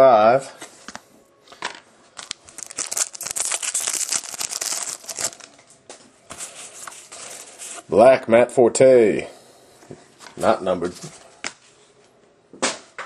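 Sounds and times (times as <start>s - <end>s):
wrapper tearing and crinkling: 2.2s - 5.6s.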